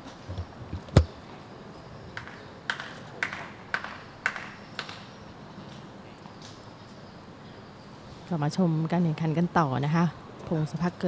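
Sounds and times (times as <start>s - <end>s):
tennis ball bouncing on hard court: 0.3s - 1.2s.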